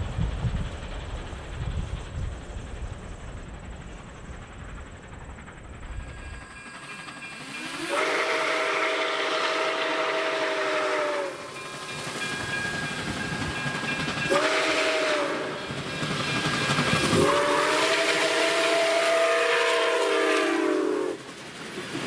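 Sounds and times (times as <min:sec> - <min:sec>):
steam whistle blasts: 0:07.5 - 0:11.8, 0:14.3 - 0:15.8, 0:17.1 - 0:21.2.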